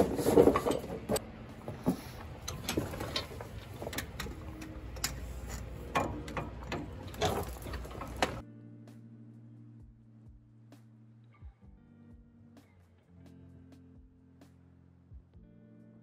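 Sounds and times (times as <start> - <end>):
hoses rustling: 0.0 - 8.4
hydraulic hoses clicking and knocking: 1.8 - 8.4.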